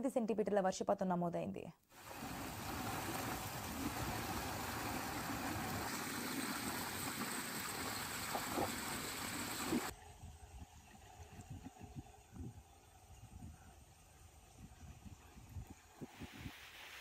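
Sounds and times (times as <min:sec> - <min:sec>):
heavy rain and running water: 0:02.0 - 0:09.9.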